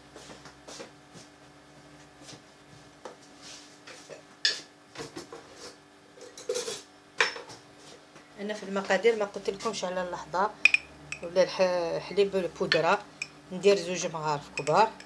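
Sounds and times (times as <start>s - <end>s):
containers knocking and clinking: 14.6s - 15.0s.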